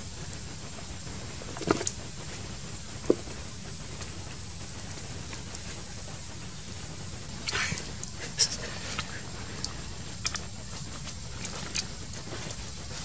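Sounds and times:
soup bubbling: 1.6s - 2.0s, 8.9s - 12.2s.

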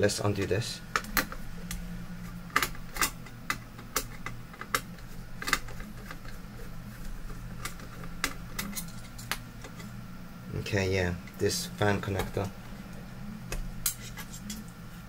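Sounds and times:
steady low hum: 0.0s - 15.0s
small metal and plastic parts clicking: 2.5s - 6.4s.

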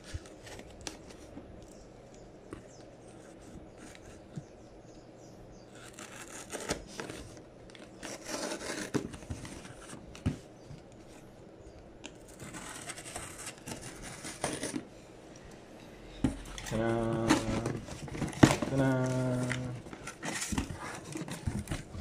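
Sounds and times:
scissors cutting packing tape: 5.8s - 7.2s, 7.8s - 10.0s, 12.1s - 14.8s.

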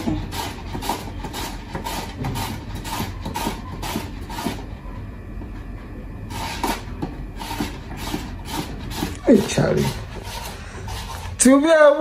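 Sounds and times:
vegetable scraping on a grater: 0.0s - 4.8s, 6.3s - 11.6s.

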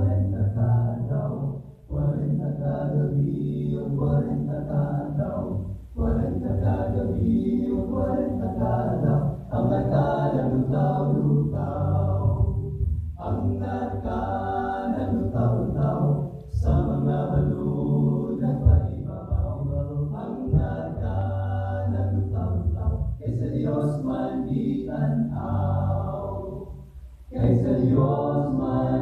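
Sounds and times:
male group singing in harmony: 0.0s - 29.0s.

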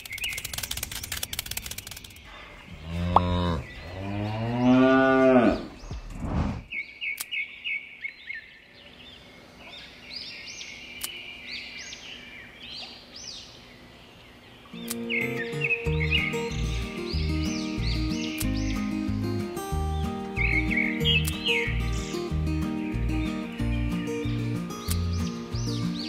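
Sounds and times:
rapid rattle of clicks: 0.0s - 2.3s
birds chirping: 0.0s - 26.0s
cow mooing: 2.8s - 5.7s.

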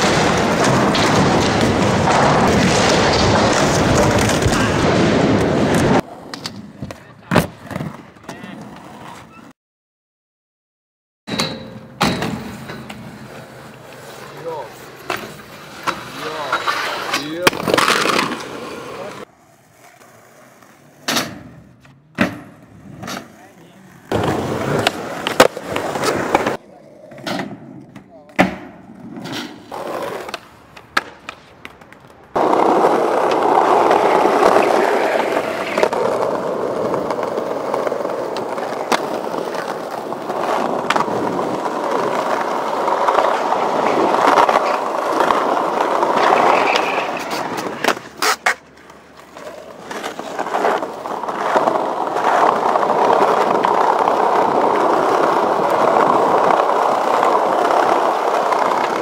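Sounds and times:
skateboard wheels rolling on stone: 0.0s - 9.5s, 11.3s - 59.0s
skateboard clacks: 21.0s - 59.0s.

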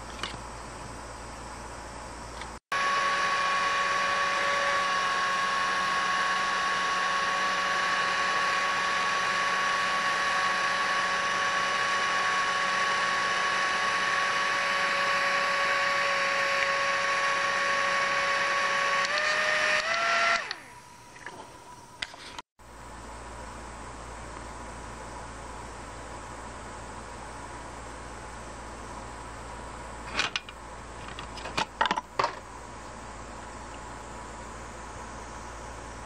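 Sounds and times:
fan motor high whine: 0.0s - 36.0s.

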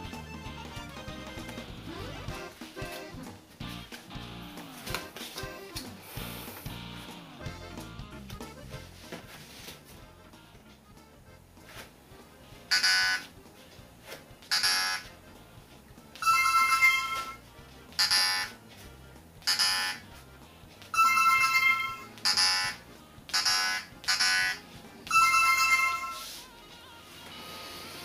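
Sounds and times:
longer electronic beeping tones: 12.7s - 13.3s, 23.4s - 26.3s.

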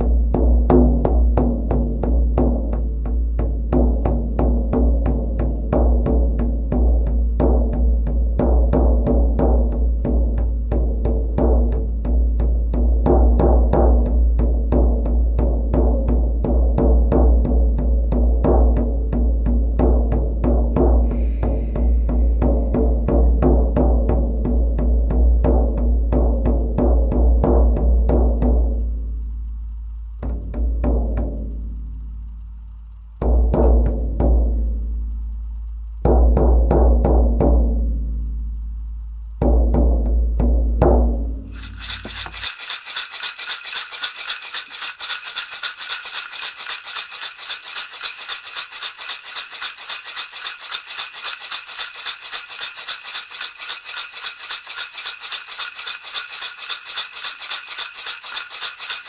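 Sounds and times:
rattle shaken rhythmically: 0.0s - 26.5s, 41.5s - 59.0s.

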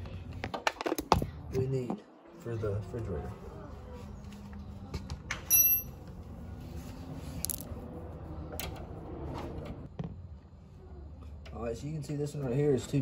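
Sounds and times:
bright ringing clink: 5.5s - 6.0s
small metal parts clinking: 5.5s - 6.0s, 7.4s - 7.7s.

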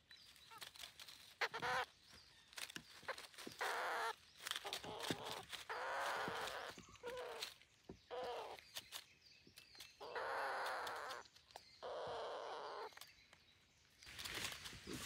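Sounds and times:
parakeets harsh rasping calls: 1.4s - 1.9s, 3.6s - 7.4s, 10.0s - 11.2s, 11.8s - 12.9s.

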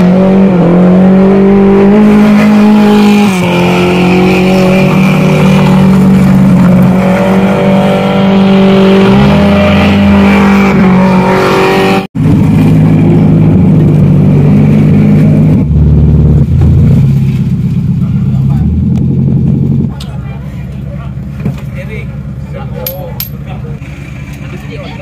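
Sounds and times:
car engine at high revs: 0.0s - 19.9s.

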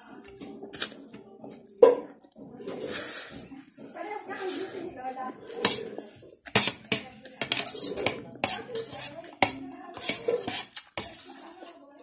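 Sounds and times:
cutlery clinking on a plate: 6.5s - 11.2s.

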